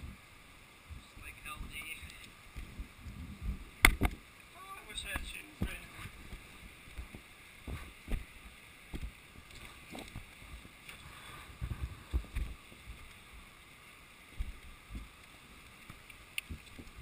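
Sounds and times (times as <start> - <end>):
river rushing: 0.1 - 3.0, 3.6 - 17.0
barefoot footsteps on cobbles: 5.1 - 11.0, 11.6 - 13.4, 14.4 - 15.2.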